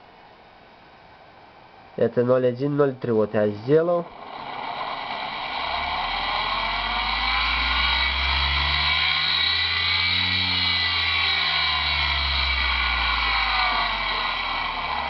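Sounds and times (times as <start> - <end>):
electric motor whine: 4.1 - 15.0.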